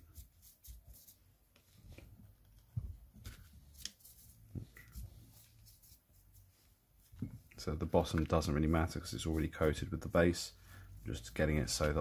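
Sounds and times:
paintbrush on figure: 0:00.0 - 0:01.6, 0:03.6 - 0:07.5, 0:08.5 - 0:11.9.

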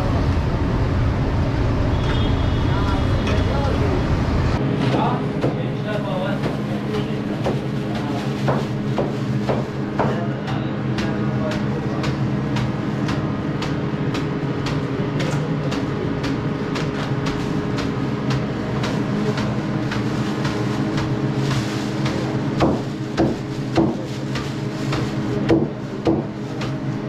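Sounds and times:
steady mechanical hum: 0:00.0 - 0:27.0
plastic bag rustling: 0:06.2 - 0:09.9, 0:18.9 - 0:27.0
knife chopping on wooden board: 0:08.4 - 0:10.2, 0:22.0 - 0:26.8.

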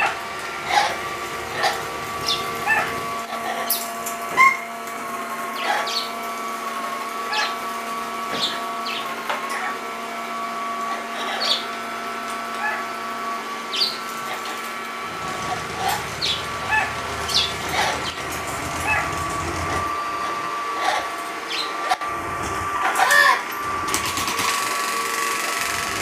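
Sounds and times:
robot vacuum cleaner humming: 0:00.0 - 0:03.5, 0:11.4 - 0:23.9
parrots calling: 0:00.0 - 0:04.7, 0:05.5 - 0:06.2, 0:07.3 - 0:07.6, 0:08.3 - 0:09.8, 0:10.9 - 0:11.8, 0:12.5 - 0:13.0, 0:13.7 - 0:22.0, 0:22.8 - 0:23.4.

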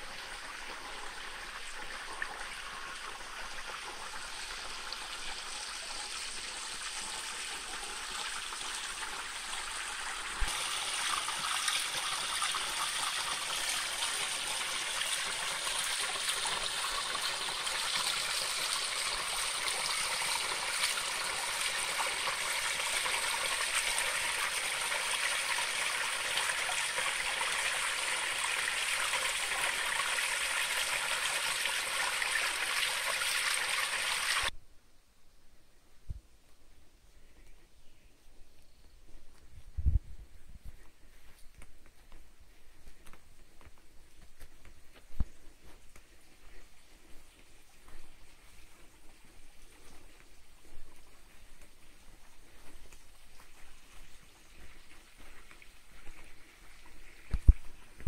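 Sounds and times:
stream splashing over rocks: 0:09.7 - 0:34.5.

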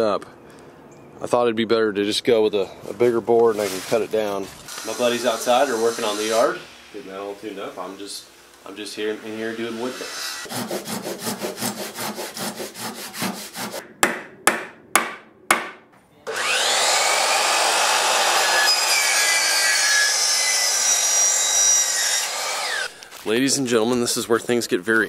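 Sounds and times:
hand saw cutting wood: 0:04.7 - 0:06.6, 0:09.2 - 0:13.9, 0:16.3 - 0:23.0
power saw cutting wood: 0:04.7 - 0:13.8, 0:16.3 - 0:23.1
sharp knocks: 0:13.9 - 0:15.9.

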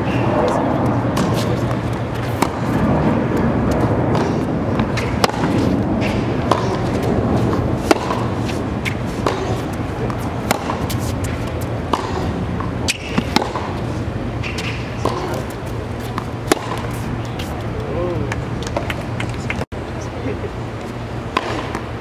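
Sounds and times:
steady background noise: 0:00.0 - 0:22.0
racket striking tennis ball: 0:00.9 - 0:17.6, 0:21.3 - 0:21.9
tennis ball bouncing: 0:00.9 - 0:19.6, 0:21.3 - 0:22.0.

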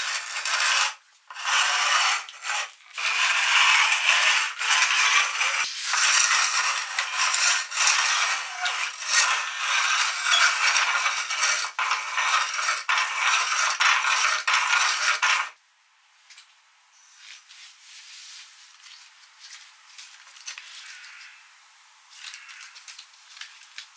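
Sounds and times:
meat grinder grinding and rattling: 0:00.0 - 0:15.5.

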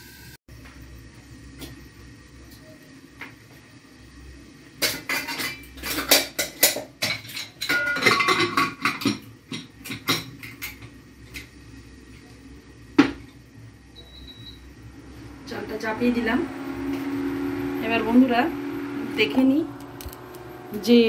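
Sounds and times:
metal pots and lids clattering: 0:04.8 - 0:11.4.

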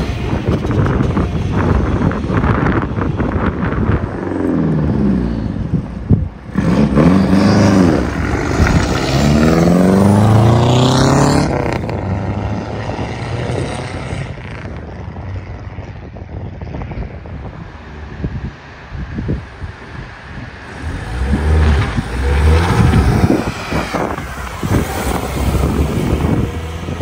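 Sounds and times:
rally car engines revving: 0:00.0 - 0:27.0.

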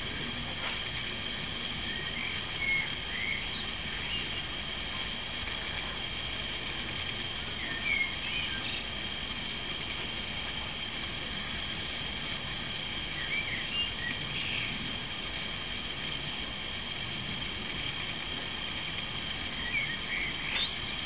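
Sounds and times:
faint high chirps: 0:19.5 - 0:21.0.

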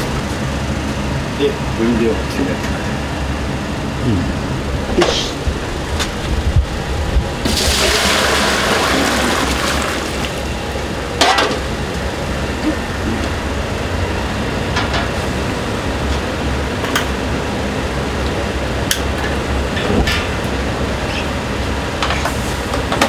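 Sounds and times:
low rumble: 0:03.9 - 0:07.8.

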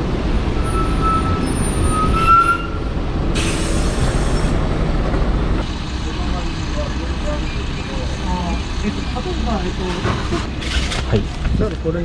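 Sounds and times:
bus engine rumble: 0:00.0 - 0:12.0
high brake squeal: 0:00.5 - 0:04.5
air release hiss: 0:03.4 - 0:04.5.

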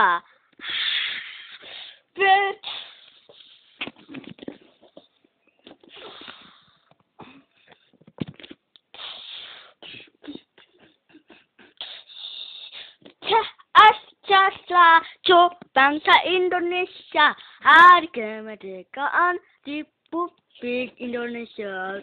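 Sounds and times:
breathy hissing: 0:00.6 - 0:03.8, 0:05.9 - 0:06.9, 0:08.9 - 0:10.5, 0:11.6 - 0:13.0
child singing: 0:13.2 - 0:22.0.

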